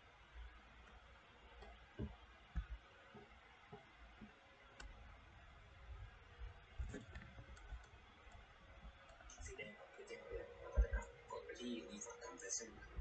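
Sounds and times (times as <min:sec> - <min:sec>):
soft clicks and knocks: 0:06.8 - 0:09.4.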